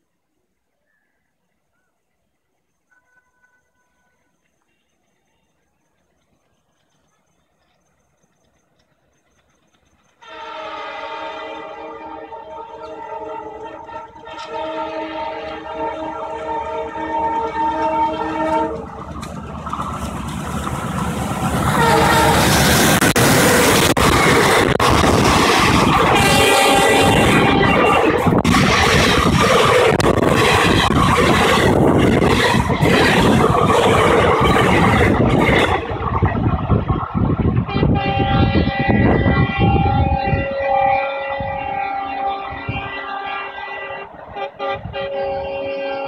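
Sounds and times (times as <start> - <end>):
locomotive engine and wheels rumble: 0.0 - 46.0
train coaches clattering on rails: 2.7 - 11.7, 12.3 - 46.0
locomotive air horn blast: 10.2 - 19.0, 21.5 - 36.2, 37.6 - 46.0.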